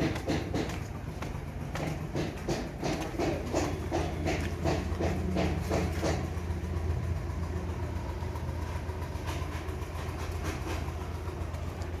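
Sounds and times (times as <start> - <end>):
building work knocks and scrapes: 0.0 - 6.3, 9.2 - 11.0
low machine hum: 0.0 - 12.0.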